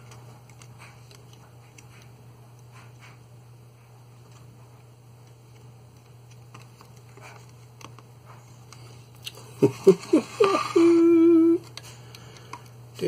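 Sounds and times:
man humming: 9.6 - 11.7.

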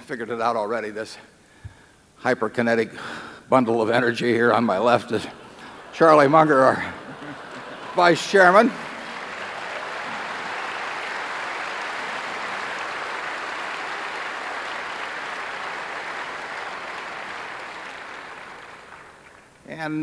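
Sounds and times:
audience applauding: 4.8 - 19.7.

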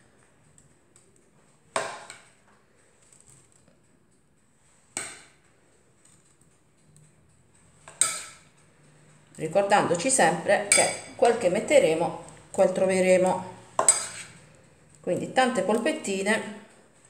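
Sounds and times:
metal spoon clinking on ceramic: 10.6 - 11.5, 13.8 - 14.3.

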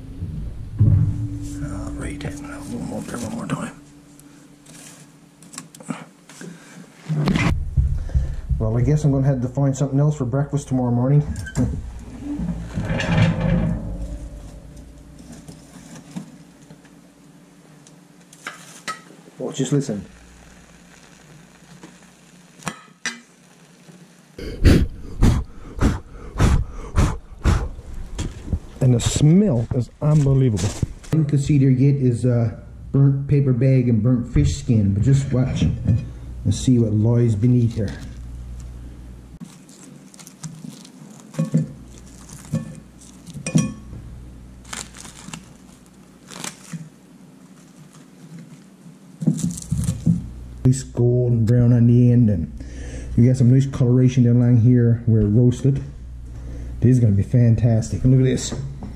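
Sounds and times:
faint steady hiss: 0.0 - 58.9
crackling rustles of charred paper: 1.5 - 8.2, 10.0 - 17.0, 17.7 - 22.7, 30.0 - 31.2, 39.4 - 43.5, 44.5 - 50.7
cutlery clinking on plate: 41.4 - 41.7.

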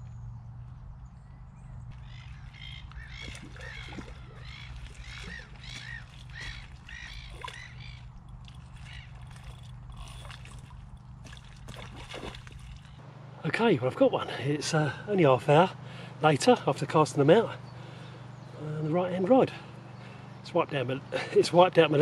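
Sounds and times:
steady low hum: 0.0 - 22.0
bird calling: 1.1 - 13.0, 14.8 - 20.4.

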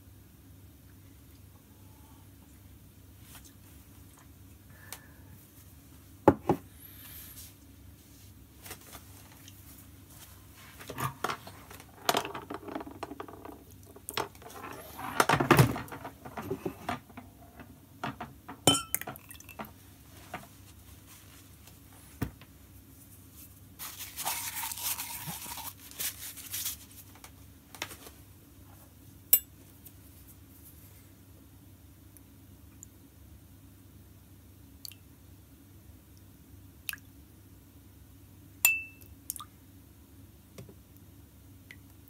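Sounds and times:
spoons clinking on cups: 18.6 - 19.6, 38.7 - 39.1.

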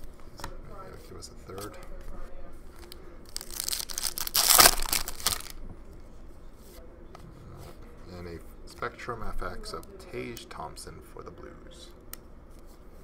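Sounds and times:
card handling: 2.8 - 5.6
foil wrapper crinkling and tearing: 2.8 - 5.6.

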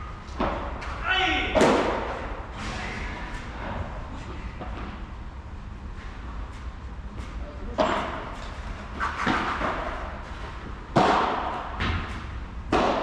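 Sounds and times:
paddle hitting ball with echo: 1.4 - 2.4, 10.9 - 12.1, 12.7 - 13.0.

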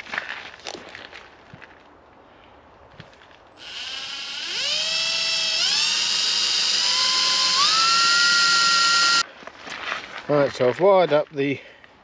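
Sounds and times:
cordless drill boring into metal: 3.6 - 9.2.

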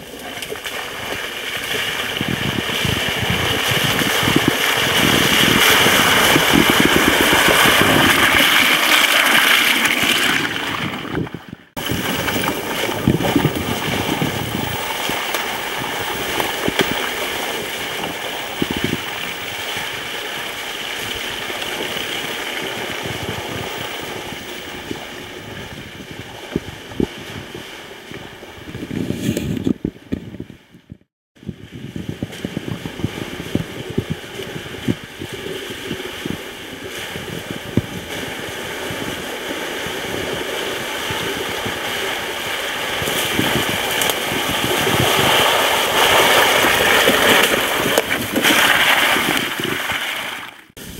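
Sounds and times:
golf cart rushing noise: 0.0 - 28.0, 32.4 - 50.9.

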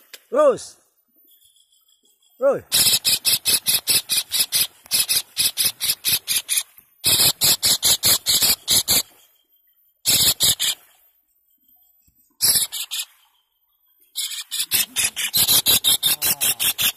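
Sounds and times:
kingfisher rattling call: 2.7 - 9.2, 10.1 - 10.8, 12.4 - 13.3, 14.2 - 16.9.

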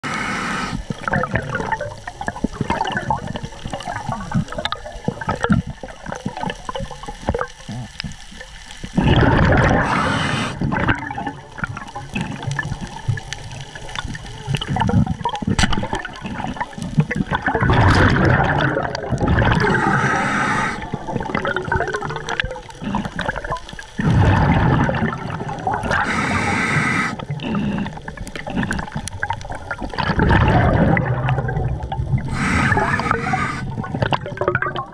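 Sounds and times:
water swishing and bubbling: 0.0 - 34.9.

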